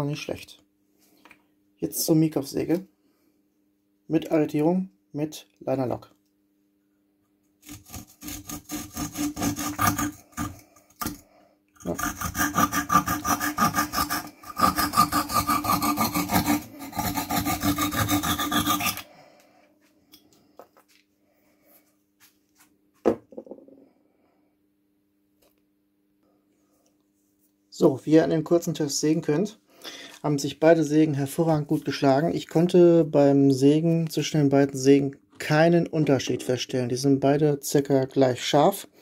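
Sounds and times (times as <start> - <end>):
saw rasping through wood: 7.6 - 11.2, 11.8 - 19.1.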